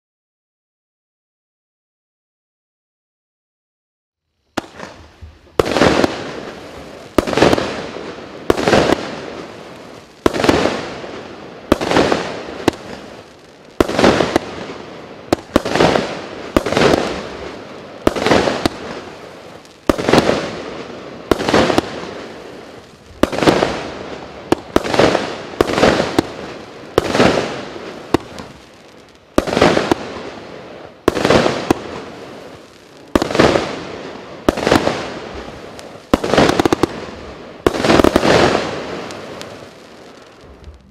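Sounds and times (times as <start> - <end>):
firework shots banging: 4.6 - 9.5, 13.8 - 28.6, 29.3 - 30.4, 31.0 - 40.9.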